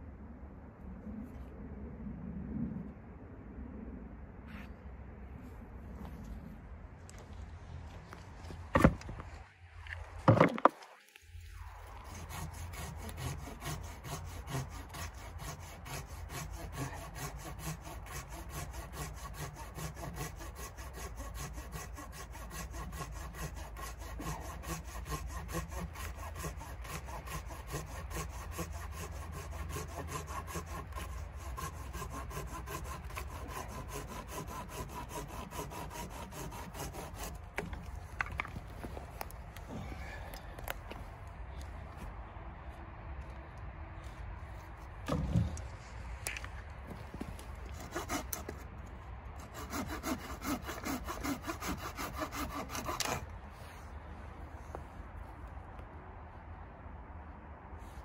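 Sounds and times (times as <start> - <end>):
hand saw cutting log: 10.3 - 10.8, 11.8 - 39.3, 47.0 - 48.7, 49.4 - 53.8.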